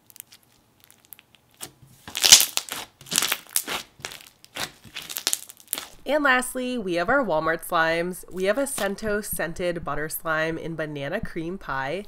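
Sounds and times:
slime squished by hand crackling: 0.0s - 6.0s.

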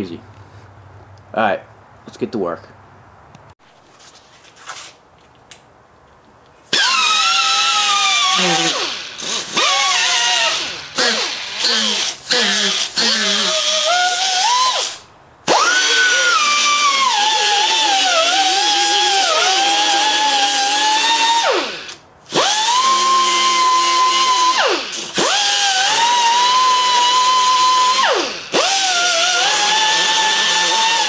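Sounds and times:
die grinder whining on metal: 6.7s - 31.0s.

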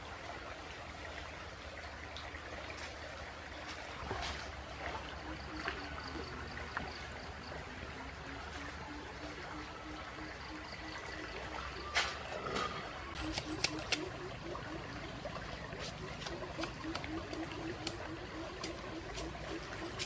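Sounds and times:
faint pulsing call: 5.0s - 20.0s.

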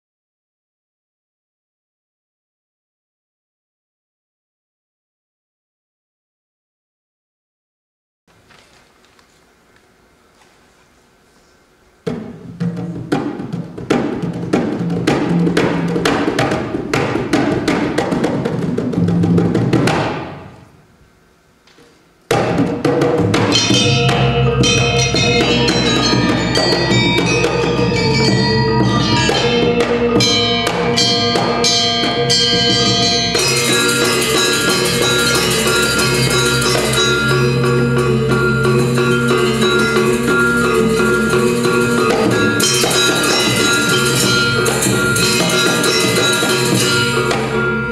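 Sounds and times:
rapid percussive strokes: 12.0s - 20.7s, 22.3s - 47.9s
gamelan ensemble playing: 23.0s - 47.9s.

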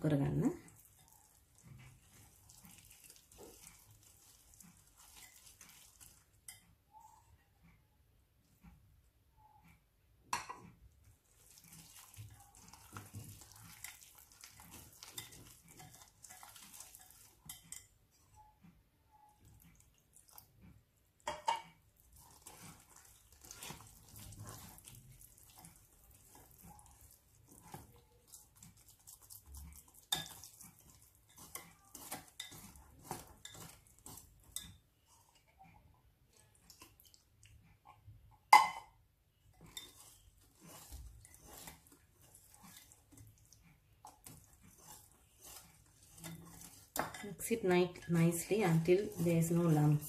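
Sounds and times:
whisk scraping glass bowl: 0.4s - 7.2s, 11.2s - 18.5s, 21.2s - 35.8s, 39.5s - 50.0s.

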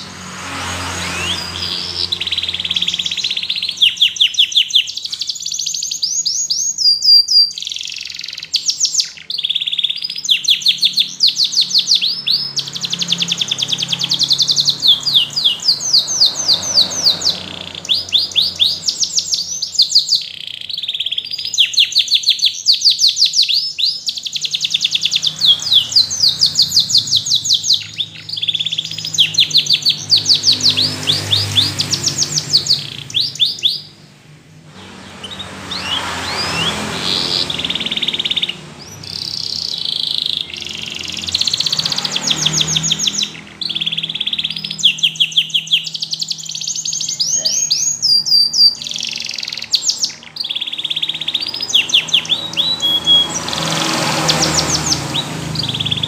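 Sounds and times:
canary singing trills: 0.0s - 56.0s.

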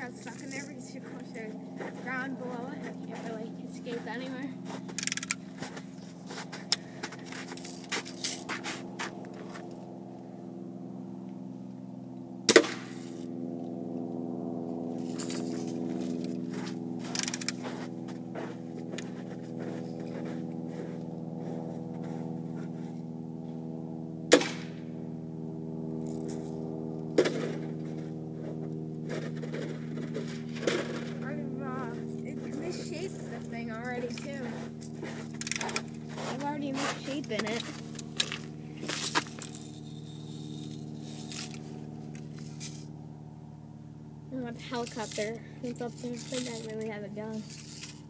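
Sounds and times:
steady mechanical hum: 0.0s - 48.0s
gun handling clicks and rattles: 4.9s - 5.4s, 17.0s - 17.8s, 35.4s - 35.9s, 37.2s - 42.9s
bb gun shots: 12.5s - 13.0s, 24.3s - 24.8s.

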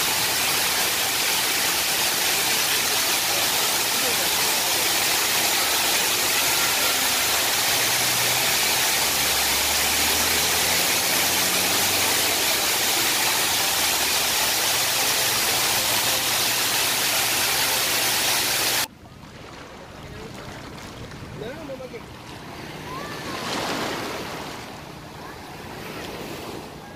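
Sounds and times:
waterfall rushing: 0.0s - 18.9s
small waves washing on beach: 0.0s - 26.9s.

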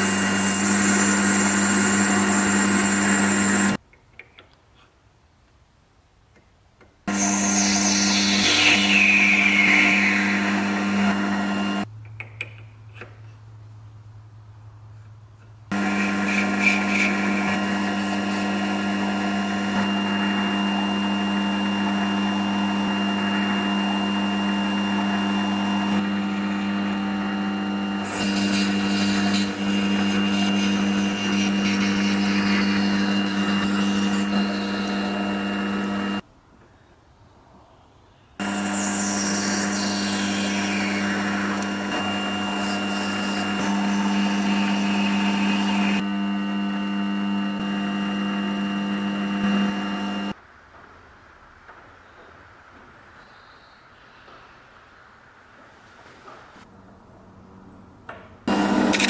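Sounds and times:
power tool motor humming: 0.0s - 3.8s, 7.1s - 11.9s, 15.7s - 36.2s, 38.4s - 50.4s, 58.5s - 59.0s.

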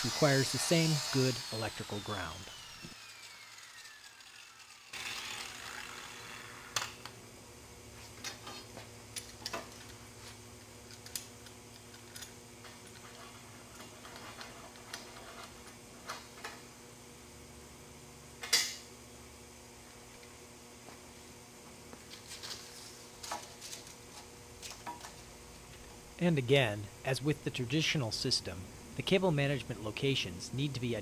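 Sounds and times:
angle grinder winding down: 0.0s - 7.1s
low steady hum: 5.5s - 31.0s.

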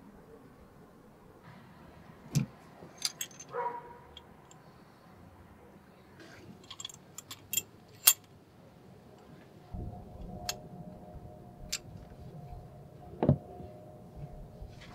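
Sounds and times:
metal vise clicks and clinks: 2.9s - 3.6s
low rumble with steady tone: 9.6s - 14.9s.

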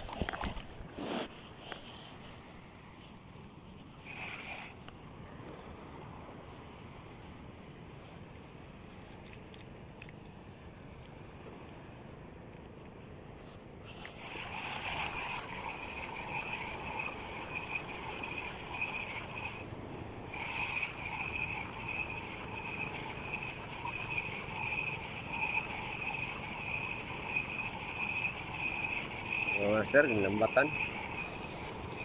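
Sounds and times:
fishing reel whirring: 3.8s - 5.5s, 12.8s - 32.0s.

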